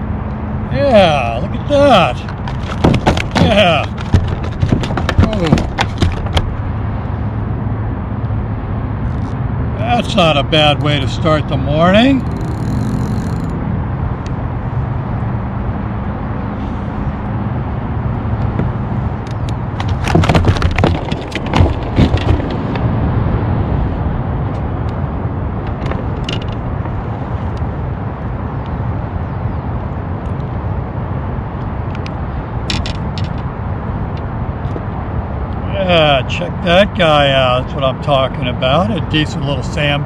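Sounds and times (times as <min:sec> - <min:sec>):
loud splashing and knocking: 0:02.4 - 0:06.6.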